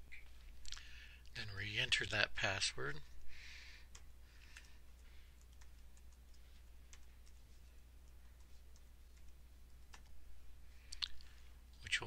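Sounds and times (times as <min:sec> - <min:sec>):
low steady hum: 0:00.0 - 0:12.0
keyboard keys clicking: 0:08.0 - 0:10.2.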